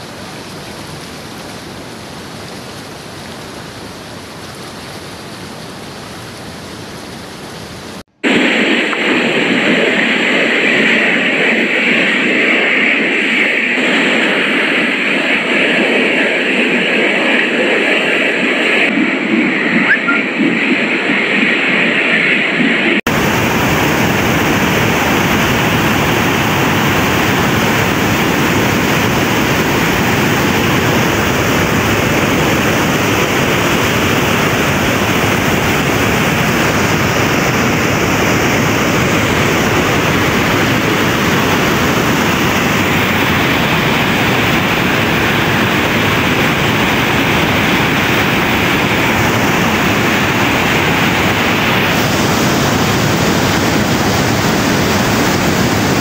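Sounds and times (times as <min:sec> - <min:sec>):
floodwater rushing over a drop: 0:00.0 - 0:21.0, 0:23.0 - 0:56.0.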